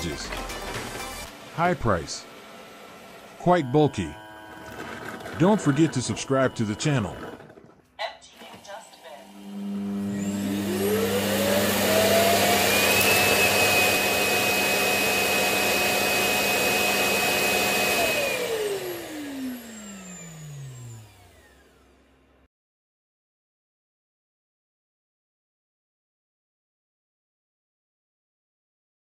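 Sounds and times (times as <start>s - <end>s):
vacuum motor whine: 1.2s - 7.8s, 8.5s - 22.2s.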